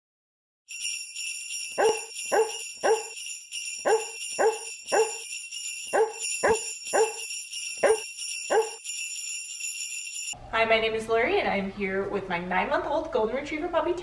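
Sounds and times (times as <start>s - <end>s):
sleigh bells jingling: 0.7s - 10.4s
dog barking in rhythm: 1.8s - 3.2s, 3.8s - 5.3s, 5.9s - 8.8s.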